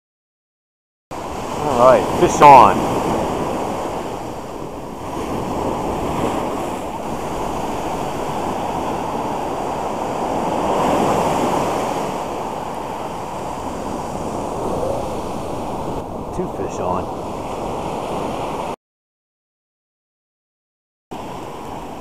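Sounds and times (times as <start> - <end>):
small waves breaking on sand: 1.2 - 18.8, 21.2 - 22.0.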